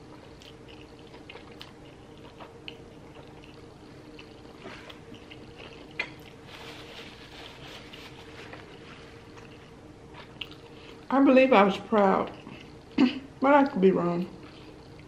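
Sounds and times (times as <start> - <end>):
wet chewing mouth sounds: 0.1 - 6.4, 8.2 - 11.1
paper napkin rustling: 6.4 - 9.2.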